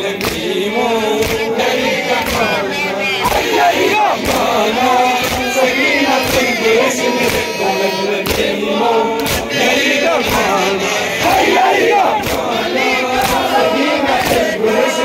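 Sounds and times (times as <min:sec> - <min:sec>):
men chanting in unison: 0:00.0 - 0:15.0
hands slapping bare chests: 0:00.2 - 0:00.5, 0:01.2 - 0:01.5, 0:02.2 - 0:02.5, 0:03.2 - 0:04.5, 0:05.2 - 0:05.5, 0:06.2 - 0:06.5, 0:07.2 - 0:07.5, 0:08.2 - 0:08.5, 0:09.2 - 0:09.5, 0:10.2 - 0:10.5, 0:11.2 - 0:12.5, 0:13.2 - 0:13.5, 0:14.2 - 0:14.4.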